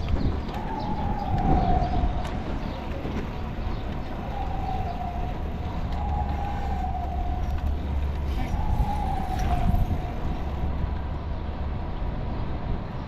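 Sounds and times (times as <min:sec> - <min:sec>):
street traffic rumble: 0:00.0 - 0:13.0
emergency vehicle siren: 0:00.1 - 0:10.9.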